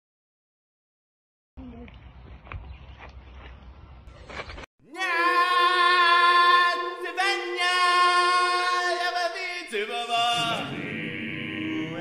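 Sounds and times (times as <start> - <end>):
person singing a cappella: 4.9 - 12.0.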